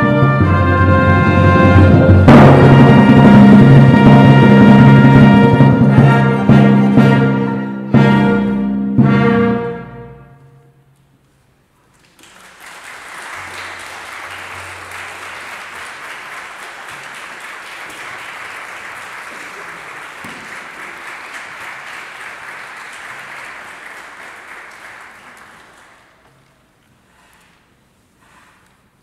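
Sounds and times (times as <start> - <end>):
audience clapping: 11.9 - 26.6.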